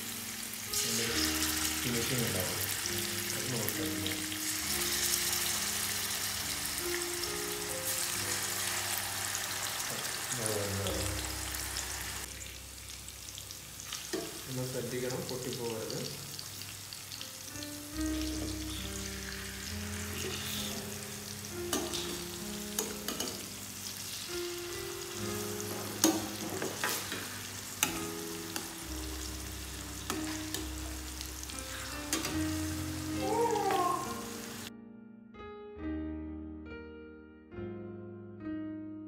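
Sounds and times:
fish sizzling in oil: 0.0s - 34.7s
soft piano-like background music: 0.0s - 39.0s
spatula clicking and scraping pan: 25.9s - 28.7s.

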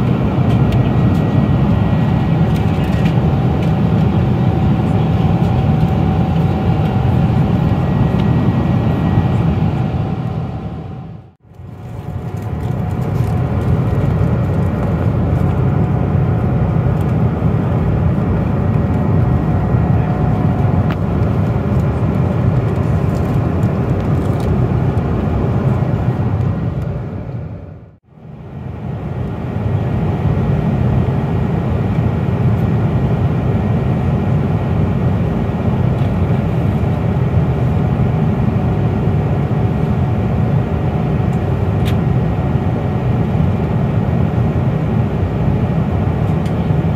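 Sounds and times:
airplane cabin engine rush: 0.0s - 46.9s.

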